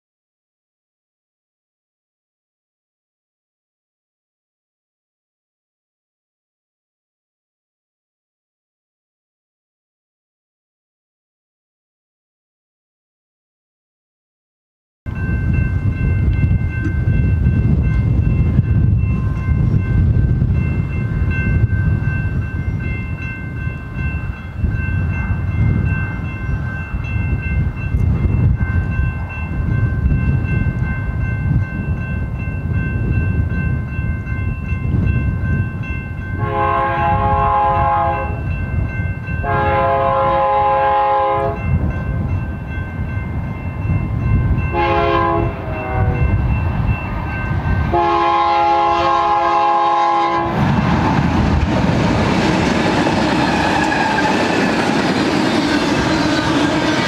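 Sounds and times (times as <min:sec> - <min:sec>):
freight train rumble: 0:15.1 - 0:57.0
locomotive air horn blasts: 0:36.4 - 0:38.4, 0:39.4 - 0:41.6, 0:44.7 - 0:46.4, 0:47.9 - 0:50.6.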